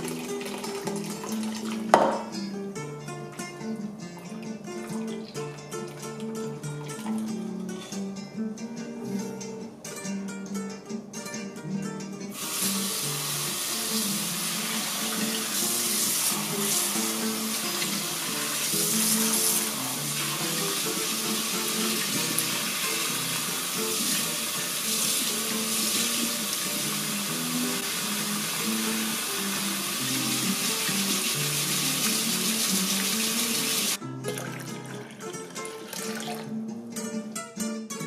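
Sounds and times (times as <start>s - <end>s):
tap water running into sink: 0.0s - 2.4s, 12.4s - 36.4s.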